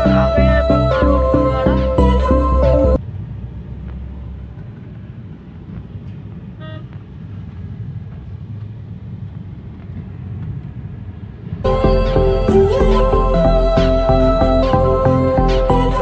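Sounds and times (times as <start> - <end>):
car rumbling in traffic: 0.0 - 16.0
vehicle horn toot: 6.6 - 7.0.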